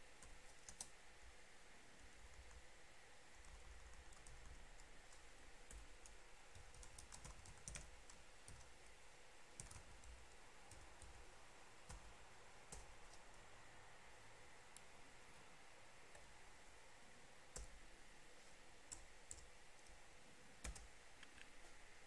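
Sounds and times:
faint keyboard typing: 0.1 - 1.0, 2.2 - 2.7, 3.3 - 13.4, 17.5 - 17.9, 18.8 - 20.0, 20.6 - 21.8.

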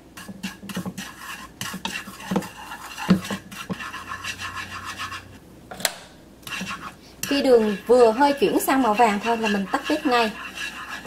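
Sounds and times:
chopsticks scraping sugar in pan: 0.2 - 5.4, 6.5 - 11.0
caramel bubbling and sizzling: 6.4 - 11.0.

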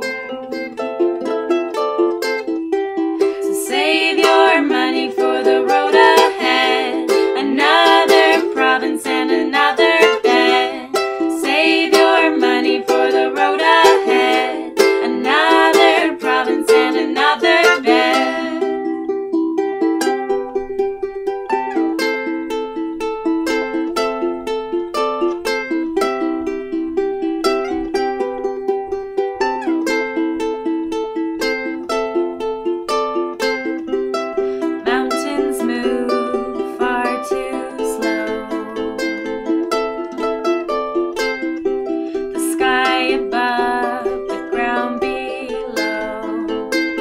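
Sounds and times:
ukuleles playing: 0.0 - 47.0
woman singing: 3.2 - 18.9, 34.6 - 39.3, 42.2 - 47.0.

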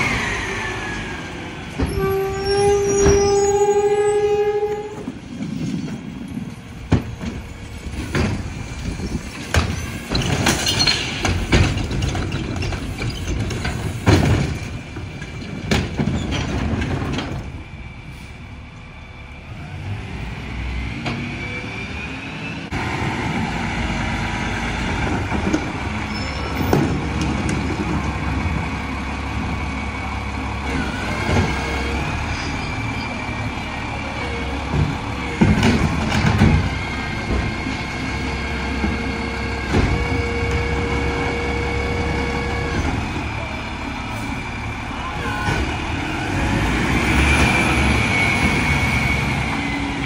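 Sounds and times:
garbage truck engine running: 22.7 - 50.0.

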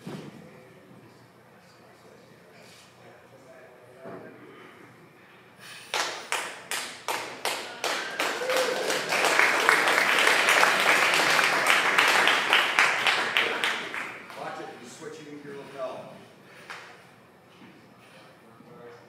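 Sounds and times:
crowd clapping in unison: 5.9 - 14.6.

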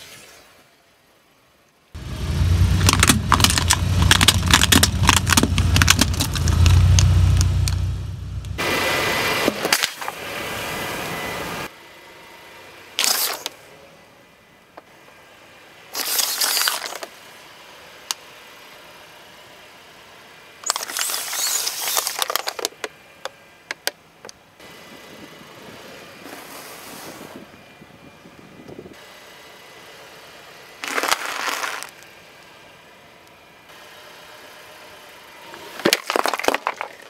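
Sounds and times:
tyre crushing plastic bottles: 2.8 - 7.1, 30.8 - 31.9, 35.8 - 37.0.

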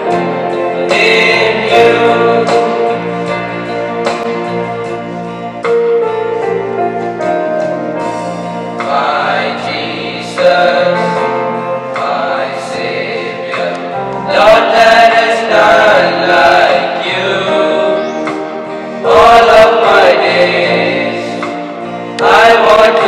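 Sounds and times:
held instrumental chords: 0.0 - 23.0
boys singing a prayer song: 0.9 - 2.8, 8.8 - 11.2, 12.0 - 18.2, 19.0 - 21.6, 22.2 - 23.0.

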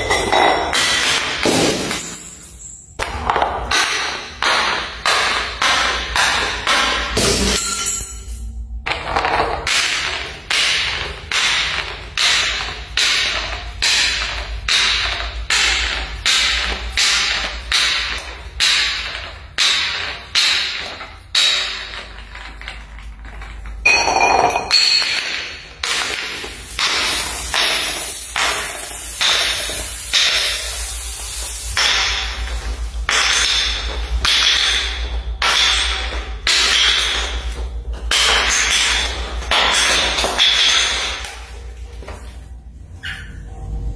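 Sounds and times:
glass bottles clacking on stairs: 0.0 - 42.2
glassy ringing strike: 7.2 - 8.6.

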